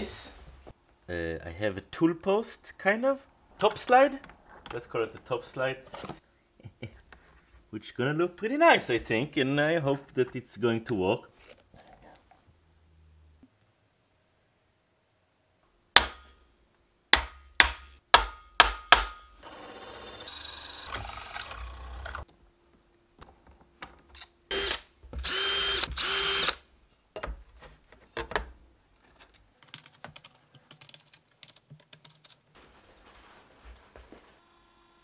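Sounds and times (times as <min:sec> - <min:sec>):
sharp metallic knocks: 0:17.1 - 0:19.4
cordless drill boring metal: 0:19.8 - 0:22.2, 0:24.5 - 0:26.6.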